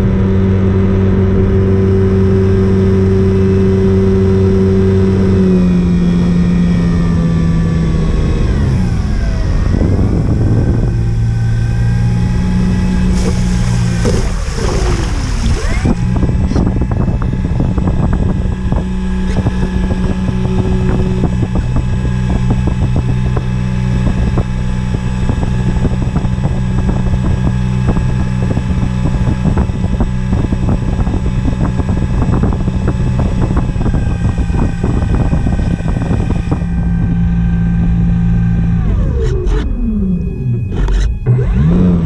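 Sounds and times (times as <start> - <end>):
electric motor and propeller whine: 0.0 - 42.0
wind on microphone: 0.0 - 42.0
water washing along floats: 12.8 - 16.7.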